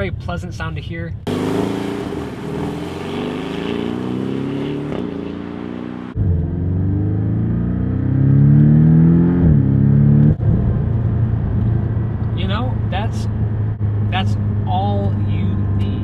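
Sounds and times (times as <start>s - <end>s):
car engine accelerating hard: 1.3s - 12.3s.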